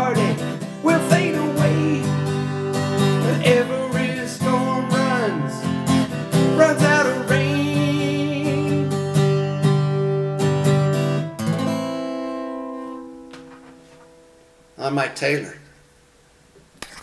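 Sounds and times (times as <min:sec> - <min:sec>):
person singing wordless vocal: 0:00.0 - 0:05.8, 0:06.4 - 0:09.1
acoustic guitar strumming chords: 0:00.0 - 0:16.2.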